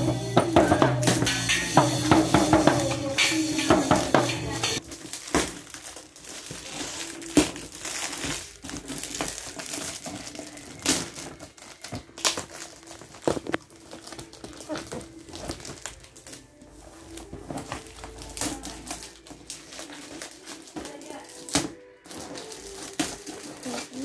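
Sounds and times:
toy drum kit struck with sticks: 0.0s - 4.8s
music: 0.0s - 24.0s
foil gift wrap crinkling and tearing: 4.8s - 24.0s.

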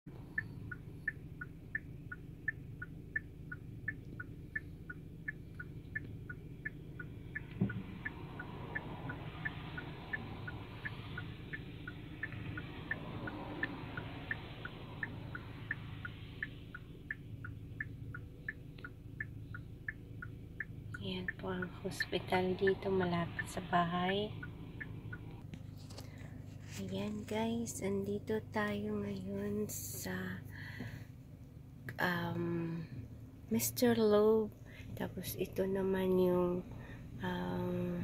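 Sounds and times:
car engine idling: 0.0s - 38.0s
turn signal clicking: 0.1s - 27.8s.

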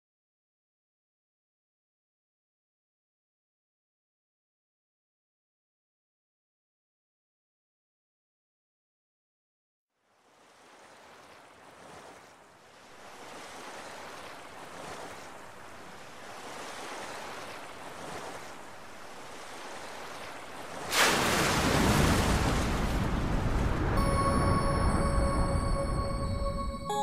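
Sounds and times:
sea waves: 10.0s - 27.0s
wind: 10.0s - 27.0s.

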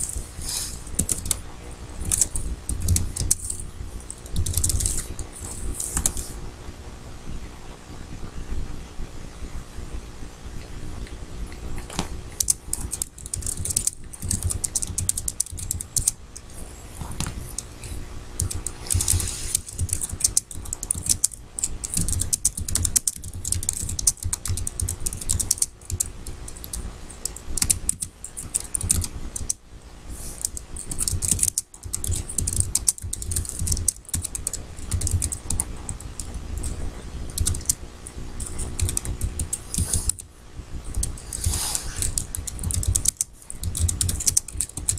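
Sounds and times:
computer keyboard typing: 0.9s - 1.4s, 2.0s - 6.3s, 12.3s - 16.5s, 18.4s - 29.6s, 30.3s - 44.9s.

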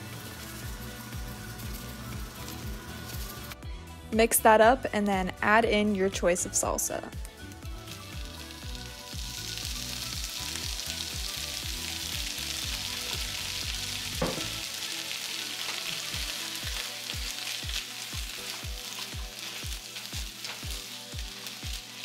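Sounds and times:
food sizzling in a frying pan: 0.0s - 3.6s, 7.2s - 22.0s
background music beat: 0.0s - 22.0s
sharp knock: 14.2s - 14.5s.

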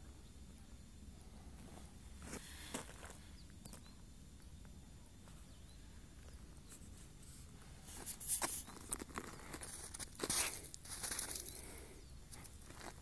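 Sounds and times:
crackling rustles: 6.1s - 13.0s.

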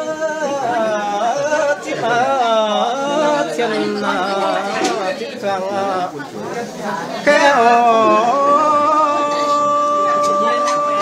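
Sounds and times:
person singing unaccompanied: 0.0s - 11.0s.

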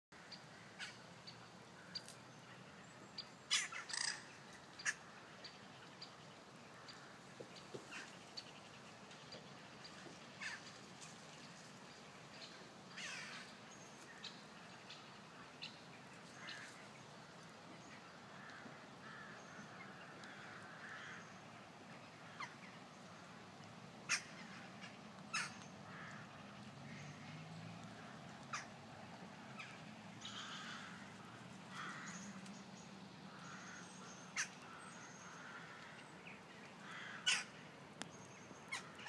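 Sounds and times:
harsh bird calls: 3.5s - 5.1s, 24.1s - 26.2s, 33.3s - 37.6s.

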